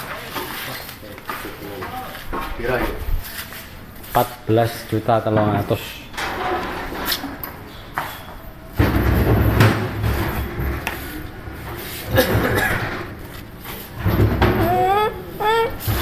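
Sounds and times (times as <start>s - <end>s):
low rumbling handling noise: 8.6s - 15.0s
sheet-metal cover knocking and clattering: 8.8s - 11.0s, 12.1s - 13.2s, 13.9s - 14.8s.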